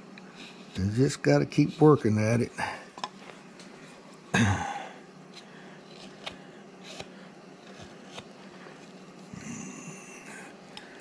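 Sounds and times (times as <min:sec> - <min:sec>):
knife scraping wood: 0:05.3 - 0:09.2.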